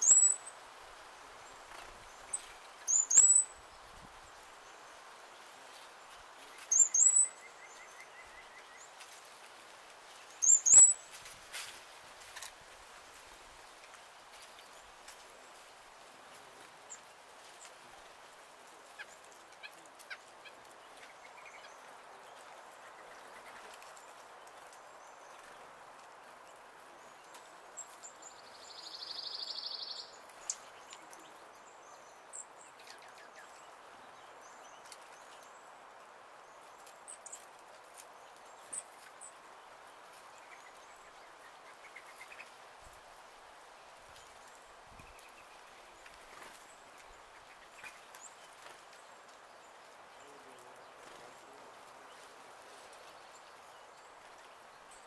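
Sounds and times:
songbird trill: 0.0s - 0.6s, 1.4s - 5.8s, 6.4s - 9.1s, 10.2s - 11.3s, 18.9s - 35.7s.

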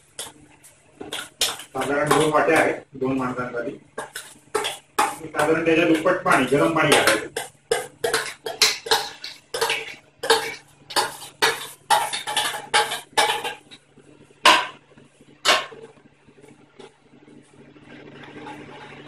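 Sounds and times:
steel utensils clinking on metal pot: 4.0s - 13.8s.

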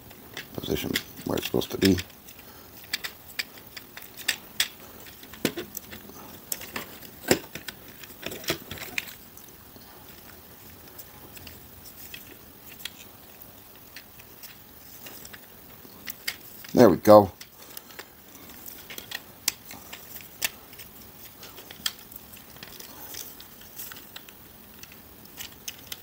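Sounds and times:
plastic parts clicking and clacking: 0.0s - 9.3s, 10.0s - 26.0s.

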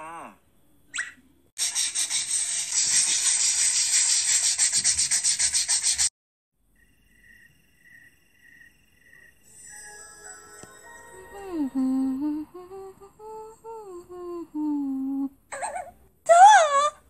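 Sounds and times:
sponge scrubbing: 1.6s - 6.1s
faint chirps: 6.7s - 9.6s.

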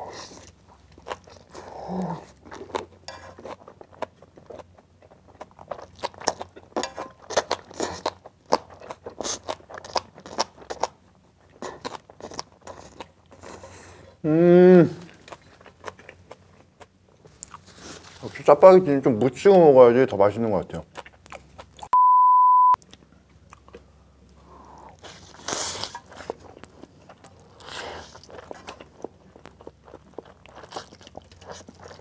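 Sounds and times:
wet crunchy chewing: 0.2s - 13.7s, 25.0s - 32.0s
person humming mmm: 1.6s - 2.3s, 14.2s - 15.2s.

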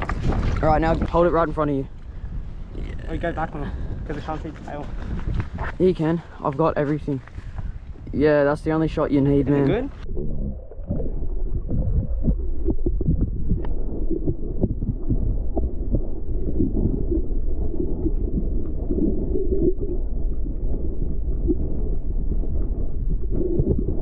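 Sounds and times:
muffled underwater rumble: 9.9s - 24.0s.

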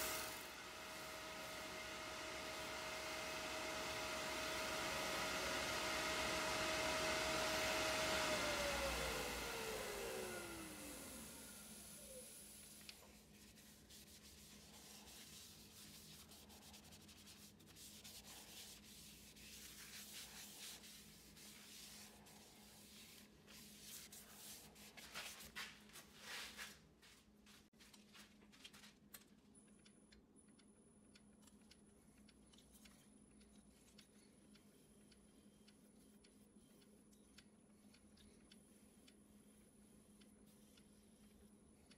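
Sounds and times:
cloth rubbing on wood: 13.0s - 27.3s.

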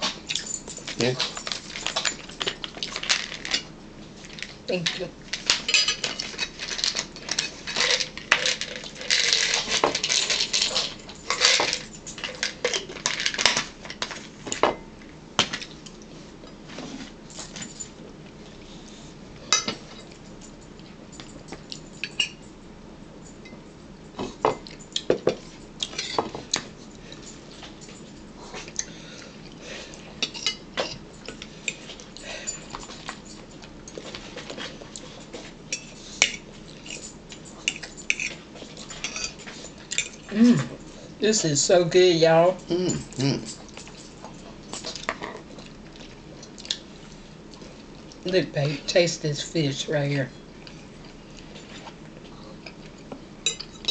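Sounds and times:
cutlery clinking on plates: 24.2s - 26.6s, 53.5s - 53.9s.

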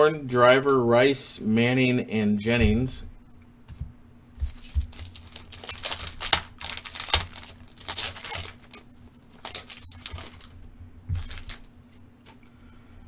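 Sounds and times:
foil wrapper crinkling and tearing: 4.5s - 10.6s, 11.2s - 11.7s.

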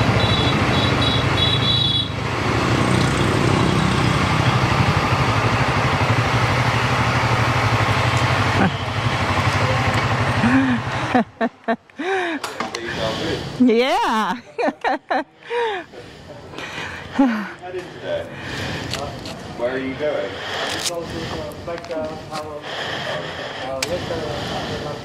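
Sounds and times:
motorcycle engine idling: 4.4s - 11.1s.

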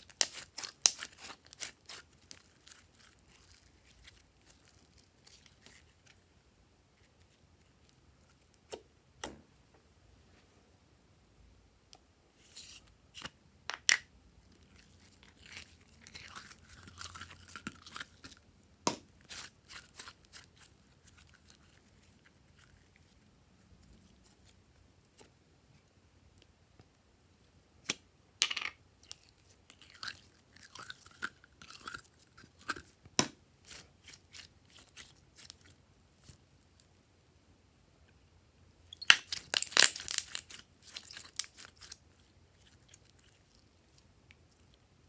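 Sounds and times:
sticky slime crackling: 0.0s - 6.2s.

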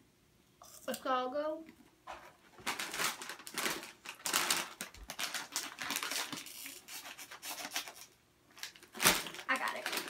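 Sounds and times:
snack bag crinkling: 2.6s - 10.0s.

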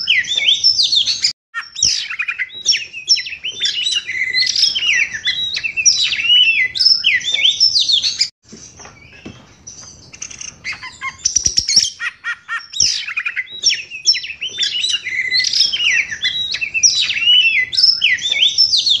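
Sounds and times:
bird singing whistled phrases: 0.0s - 8.3s, 10.1s - 19.0s
bird sharp clicks: 9.1s - 11.9s.

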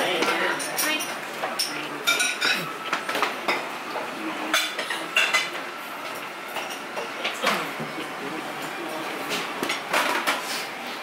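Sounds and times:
dishes and cutlery clinking: 0.0s - 8.0s
restaurant background noise: 0.0s - 11.0s.

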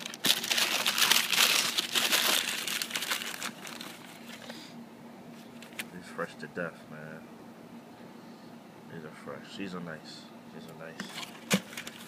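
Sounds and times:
tissue paper crinkling: 0.0s - 4.4s.

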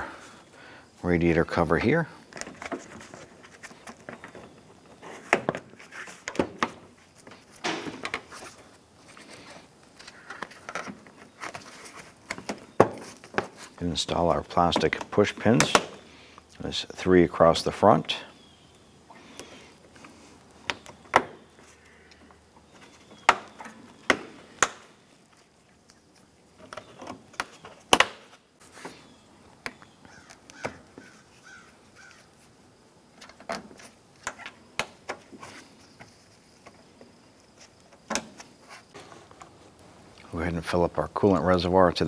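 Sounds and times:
plastic scraping and rubbing: 2.2s - 13.8s.

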